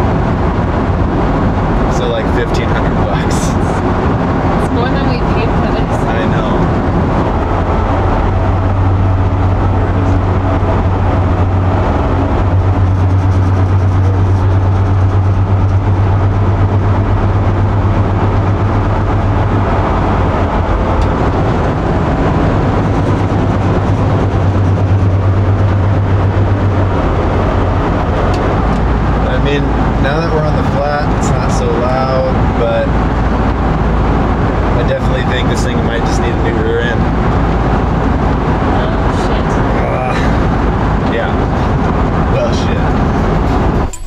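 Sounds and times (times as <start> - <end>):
low drone: 0.0 - 44.0
van road and driveline noise: 0.0 - 44.0.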